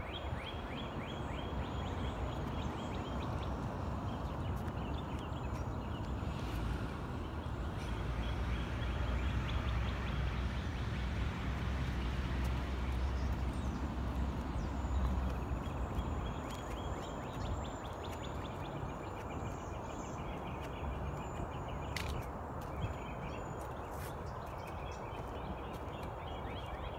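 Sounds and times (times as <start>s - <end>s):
birds chirping in trills: 11.9s - 26.9s.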